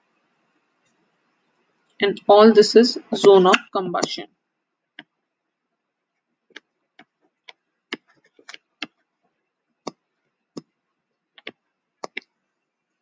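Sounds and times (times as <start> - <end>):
stylus tapping on touchscreen: 4.9 - 5.2, 6.5 - 9.1, 9.8 - 10.8, 11.4 - 12.3.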